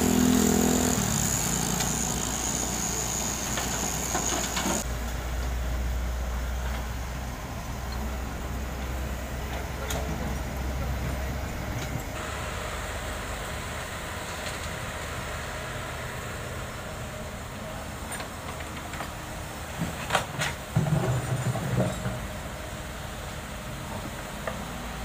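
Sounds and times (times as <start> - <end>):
excavator diesel engine running: 0.0 - 25.0
road traffic: 0.0 - 25.0.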